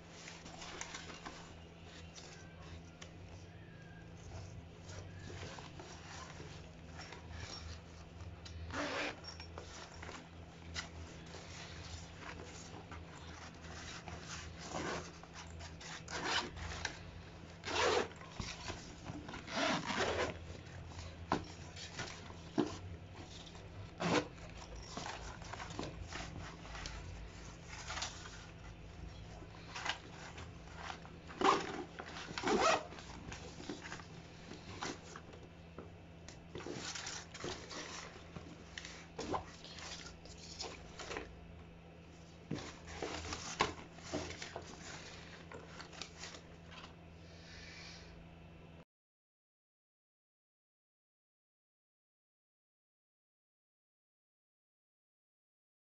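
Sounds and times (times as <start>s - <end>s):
bag fabric rustling: 0.0s - 35.5s, 36.5s - 41.3s, 42.2s - 46.9s
zippers being pulled: 8.7s - 17.0s, 17.6s - 20.5s, 23.8s - 26.8s, 29.6s - 35.2s.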